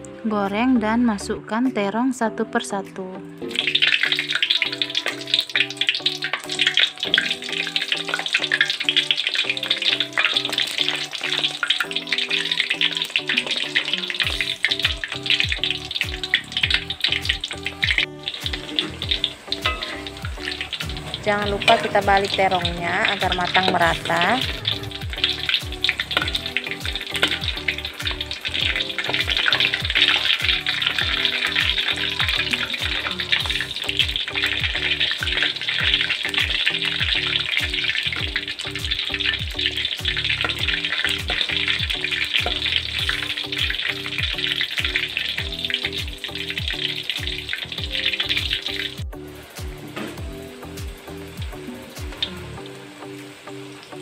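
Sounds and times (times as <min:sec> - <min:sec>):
background music with steady beat: 0:00.0 - 0:54.0
eggplant frying in hot oil: 0:03.4 - 0:54.0.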